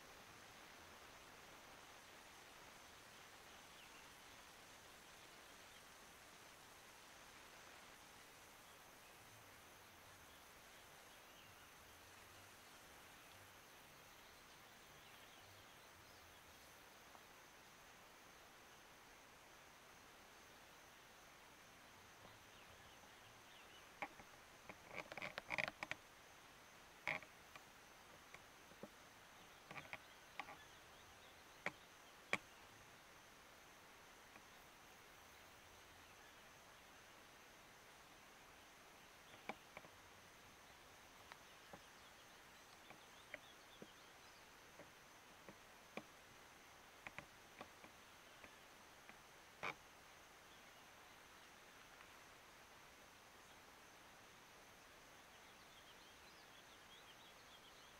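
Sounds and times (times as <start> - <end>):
high insect buzz: 19.5 - 57.9
small sharp clicks: 47.0 - 49.8.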